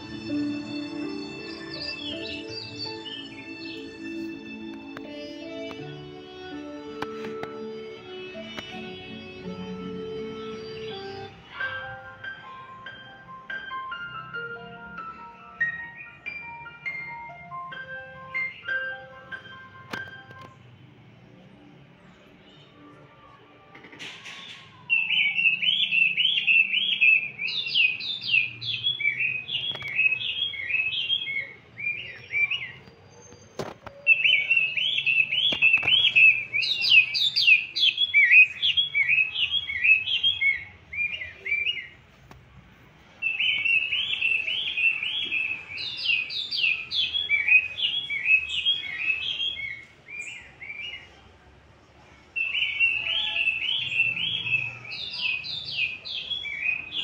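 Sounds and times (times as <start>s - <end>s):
bird chirping: 0.0s - 6.6s, 8.4s - 11.4s, 24.6s - 42.0s, 43.2s - 51.1s, 52.4s - 57.0s.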